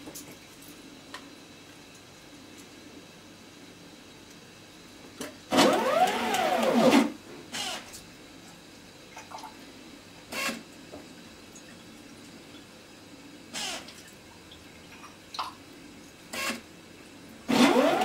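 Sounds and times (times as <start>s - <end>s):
short mechanical noises: 5.5s - 7.9s, 10.3s - 10.6s, 13.6s - 13.9s, 16.3s - 16.6s, 17.5s - 18.0s.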